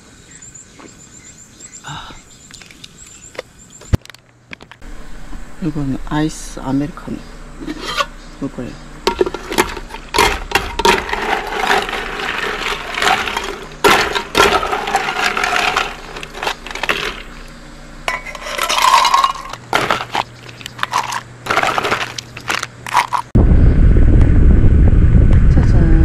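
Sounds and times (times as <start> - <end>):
ice cubes clinking: 9.1 - 17.5, 18.1 - 23.3.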